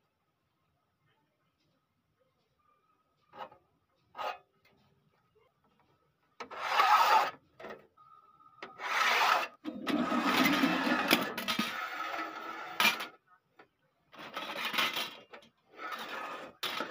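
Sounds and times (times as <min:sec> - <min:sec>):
steel scriber scratching steel sheet: 0:06.4 - 0:07.4, 0:08.7 - 0:09.6, 0:15.8 - 0:16.9.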